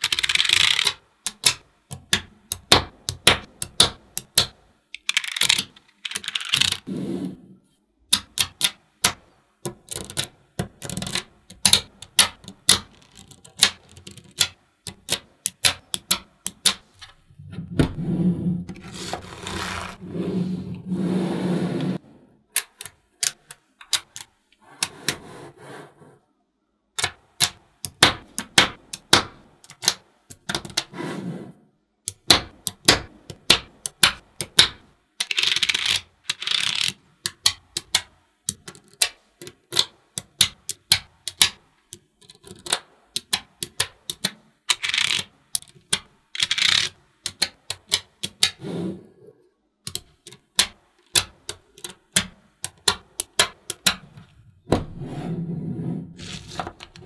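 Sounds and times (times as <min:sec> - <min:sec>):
magnetic balls clicking: 0:00.0 - 0:06.9, 0:08.1 - 0:17.1, 0:32.1 - 0:48.6, 0:49.8 - 0:54.6.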